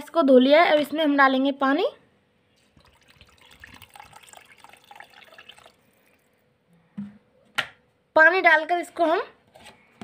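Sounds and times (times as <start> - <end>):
water pouring into bowl of rice: 2.7 - 6.3.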